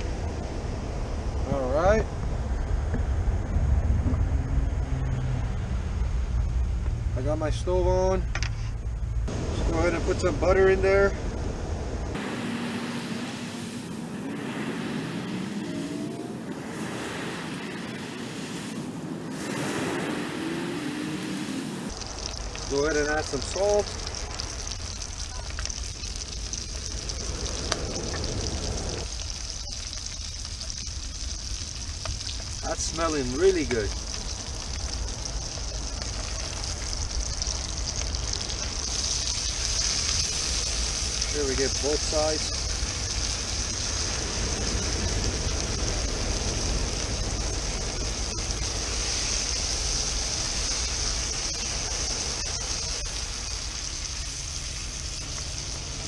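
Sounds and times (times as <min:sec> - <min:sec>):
fish sizzling in butter: 0:13.6 - 0:56.0.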